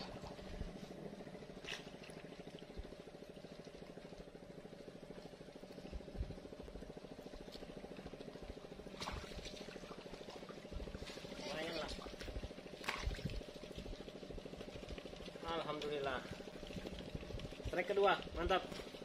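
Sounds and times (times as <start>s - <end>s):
engine throbbing: 0.0s - 19.0s
fish splashing at surface: 12.0s - 14.0s.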